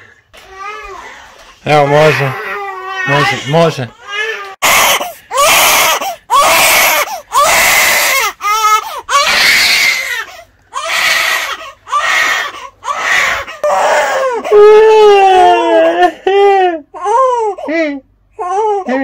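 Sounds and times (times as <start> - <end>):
baby crying hard: 1.7 - 16.1, 17.0 - 17.7
baby breathing in quickly: 8.8 - 9.1.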